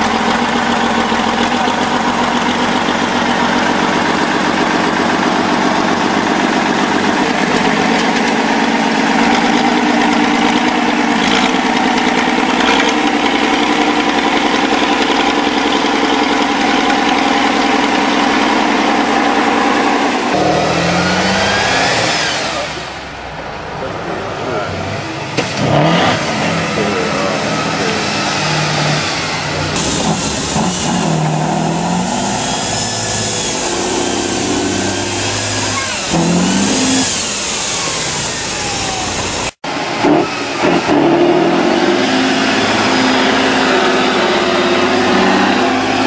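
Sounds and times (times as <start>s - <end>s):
off-road vehicle engines running: 0.0s - 46.0s.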